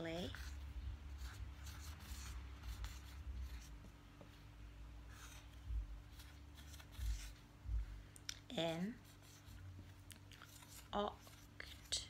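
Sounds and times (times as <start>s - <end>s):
marker pen scratching on whiteboard: 0.0s - 4.4s, 5.1s - 7.8s, 8.6s - 12.0s.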